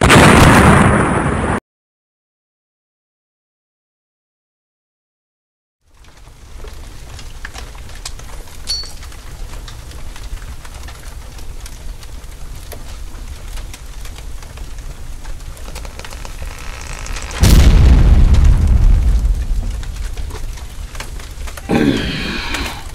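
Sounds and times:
faint crackles and ticks: 5.8 - 22.9
low rumble: 14.7 - 22.9.

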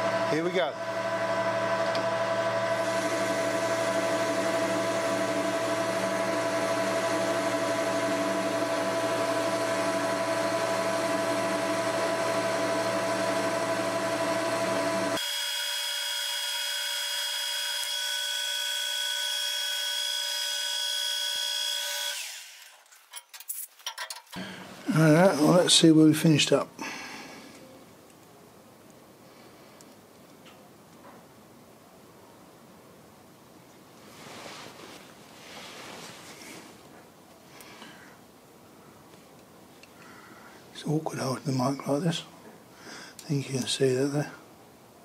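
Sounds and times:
metal lathe hum and whine: 0.0 - 22.4.

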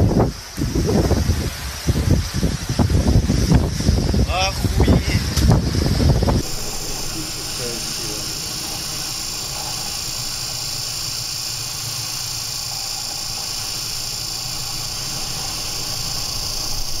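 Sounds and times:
low rumble of heavy seas: 0.0 - 17.0
storm wind hissing: 0.0 - 17.0
wave breaking over bow: 5.2 - 17.0.

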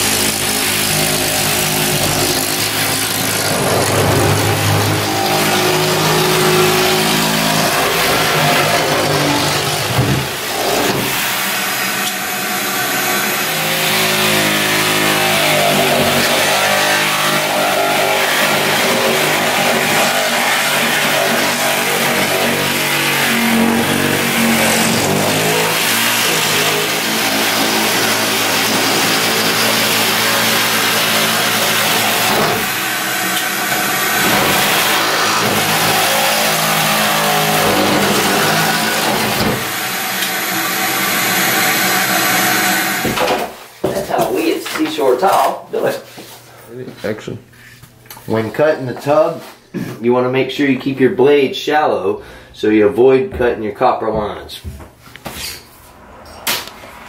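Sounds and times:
reciprocating saw cutting: 0.0 - 43.2
shop vacuum running: 0.0 - 46.9.

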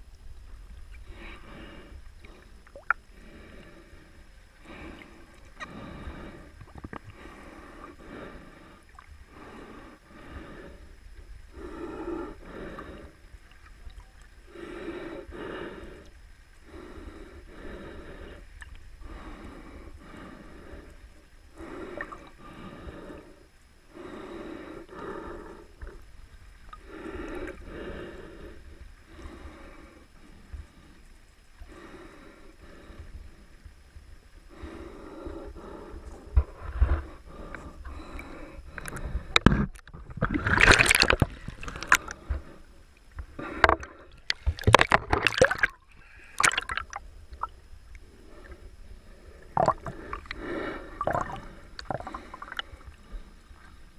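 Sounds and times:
low rumble of water: 0.0 - 53.9
heavy breathing underwater: 1.1 - 13.4, 14.5 - 26.0, 34.5 - 53.8.

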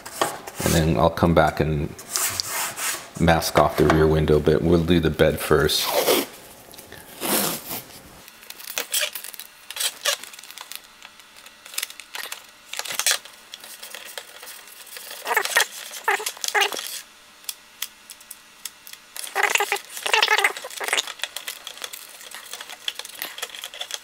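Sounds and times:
tape rasping and rubbing on plastic: 2.0 - 3.1, 11.4 - 17.1, 19.2 - 24.0.

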